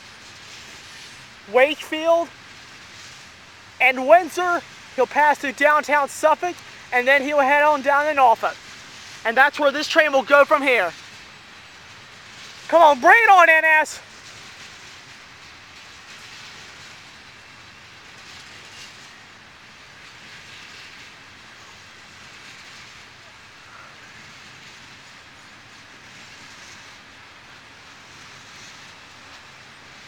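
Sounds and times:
train cars rolling past: 0.0 - 6.9, 13.8 - 30.0.

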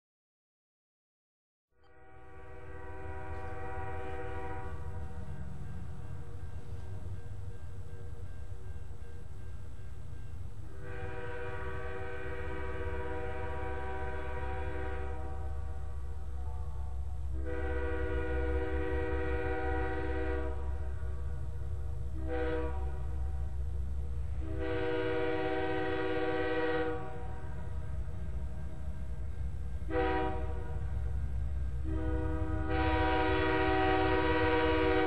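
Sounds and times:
locomotive air horn blasts: 1.8 - 5.1, 10.6 - 21.2, 22.1 - 23.3, 24.3 - 27.7, 29.9 - 30.9, 31.8 - 35.0.

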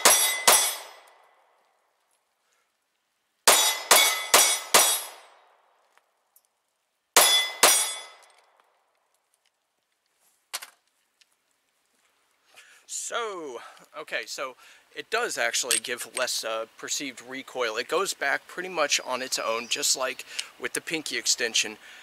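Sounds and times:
pistol shots: 0.0 - 1.2, 3.5 - 5.4, 7.2 - 8.3.

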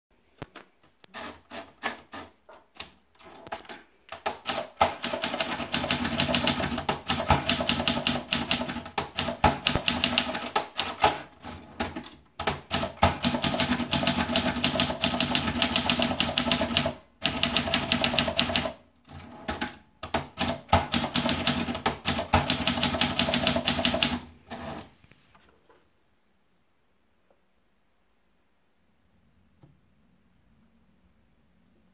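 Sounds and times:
paper feed clicks: 1.1 - 18.8, 19.5 - 24.9
typewriter typing: 1.1 - 24.9.

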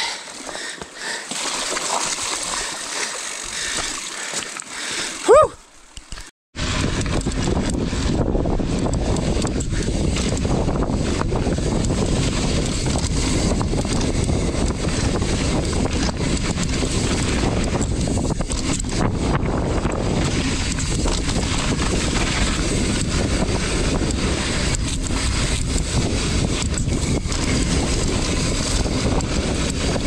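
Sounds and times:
bike clattering over rough trail: 6.1 - 30.0
wind buffeting microphone: 6.6 - 30.0.

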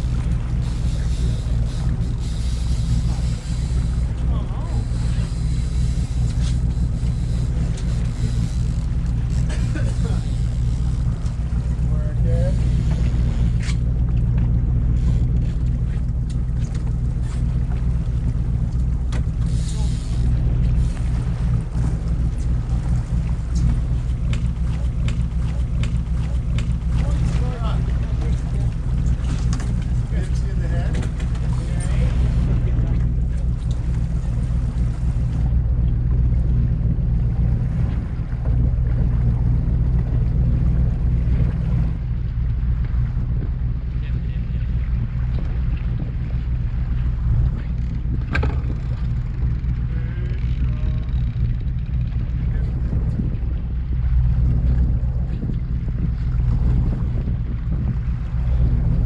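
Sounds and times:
boat engine droning: 0.0 - 59.0
water noise: 0.0 - 59.0
wind on microphone: 0.0 - 59.0
sharp clicks and knocks: 23.5 - 27.2, 47.6 - 49.2.

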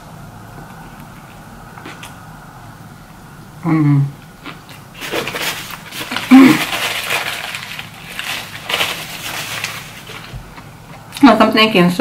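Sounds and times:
paper napkin rustling: 5.0 - 10.7.

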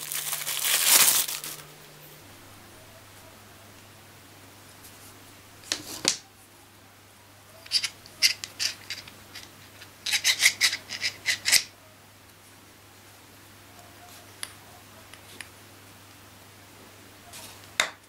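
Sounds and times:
metal clicks and scrapes: 7.6 - 11.7.

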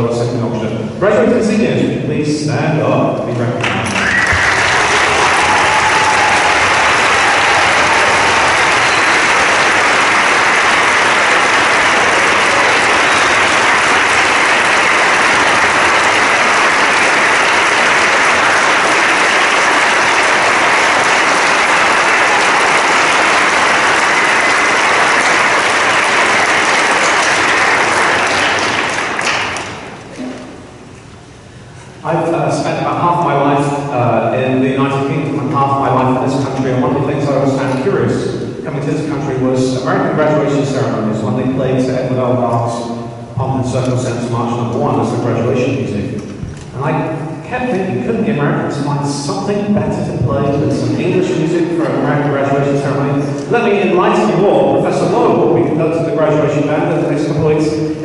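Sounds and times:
audience applauding: 3.6 - 30.1.

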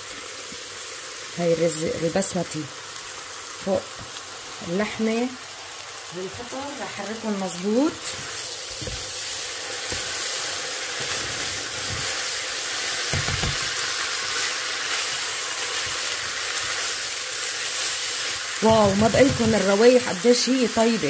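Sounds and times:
food sizzling in pot: 0.0 - 21.0
spoon knocking against pot: 13.1 - 13.7, 18.6 - 19.7.

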